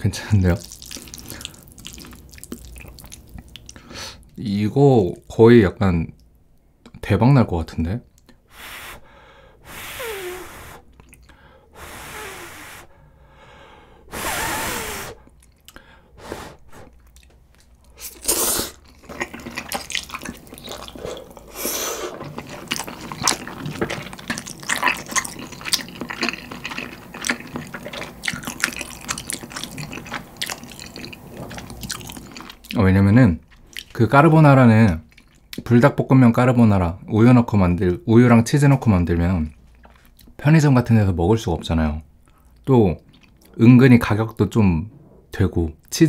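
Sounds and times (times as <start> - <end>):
close chewing with wet smacks: 0.6 - 3.8, 16.9 - 21.5, 22.1 - 32.8, 33.4 - 34.0, 35.0 - 35.7, 42.2 - 43.6
slurping noodles: 8.6 - 13.0, 14.1 - 15.3, 17.9 - 32.6.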